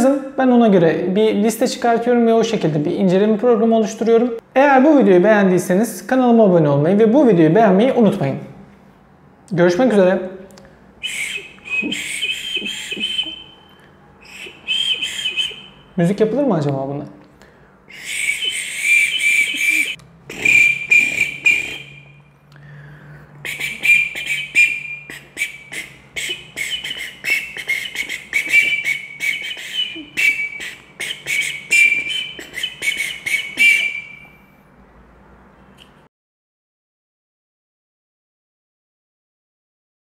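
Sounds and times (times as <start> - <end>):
whistle short high toots: 11.0 - 16.0, 18.0 - 22.2, 23.4 - 34.5.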